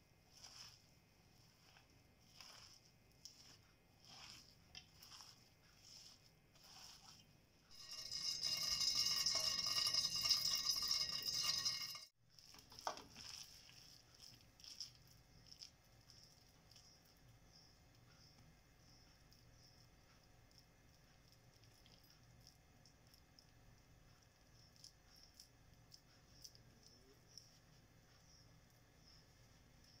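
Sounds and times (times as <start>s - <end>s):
hands rustling onions in bowl: 0.0s - 17.1s
hot oil sizzling: 7.7s - 15.0s.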